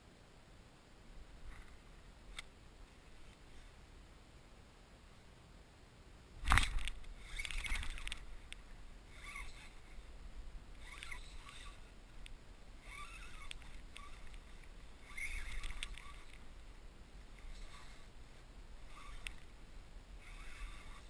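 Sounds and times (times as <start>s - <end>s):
short scratchy bursts: 9.1s - 10.1s, 10.8s - 12.0s, 12.8s - 16.5s, 17.4s - 18.2s, 18.8s - 19.5s, 20.2s - 21.0s.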